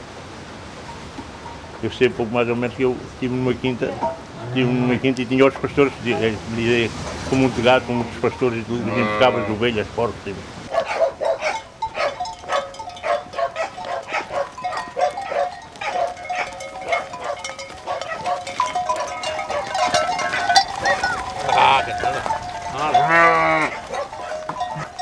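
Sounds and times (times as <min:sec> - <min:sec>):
sheep bells clanking: 0:07.3 - 0:09.4, 0:11.2 - 0:25.0
sheep bleating: 0:08.8 - 0:09.6, 0:20.2 - 0:24.9.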